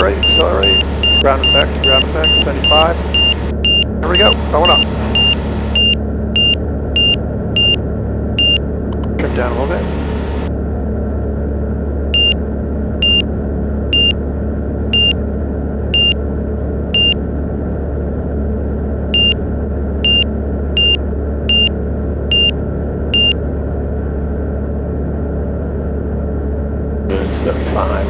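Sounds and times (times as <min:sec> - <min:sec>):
aircraft engine droning: 0:00.0 - 0:28.0
short high warning beeps: 0:00.2 - 0:07.8, 0:08.4 - 0:08.6, 0:12.2 - 0:12.4, 0:13.0 - 0:13.2, 0:15.0 - 0:15.2, 0:16.0 - 0:16.2, 0:17.0 - 0:17.2, 0:19.2 - 0:19.4, 0:20.1 - 0:21.7, 0:22.3 - 0:22.5, 0:23.2 - 0:23.4.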